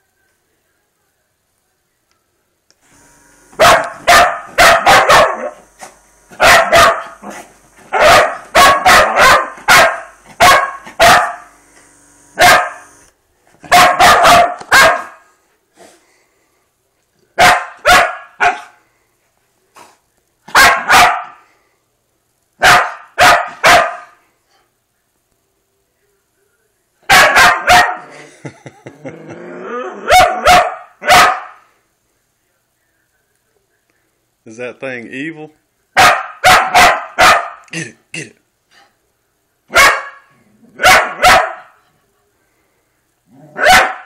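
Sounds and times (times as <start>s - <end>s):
electric massager motor humming: 2.8s - 4.6s, 5.2s - 8.6s, 9.5s - 13.2s
small dog barking: 3.6s - 5.7s, 6.3s - 11.5s, 12.4s - 12.9s, 13.6s - 15.2s, 17.4s - 18.8s, 20.5s - 21.4s, 22.6s - 24.2s, 27.1s - 28.1s, 30.0s - 31.7s, 36.0s - 37.6s, 39.7s - 41.8s, 43.5s - 44.0s.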